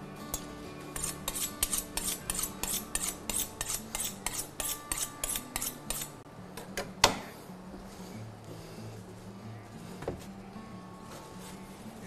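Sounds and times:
knife strokes on a sharpener: 0:00.4 - 0:06.2.

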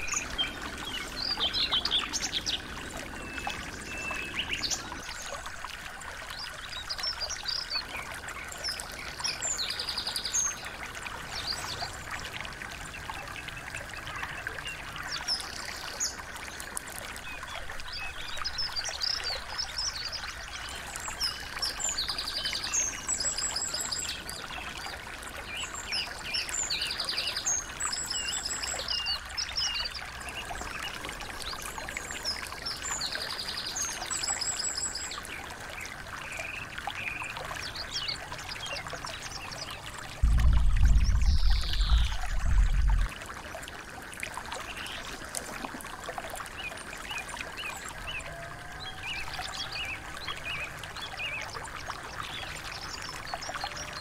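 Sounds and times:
songbirds chirping and trilling: 0:00.0 - 0:43.0
stream trickling: 0:00.0 - 0:54.0.

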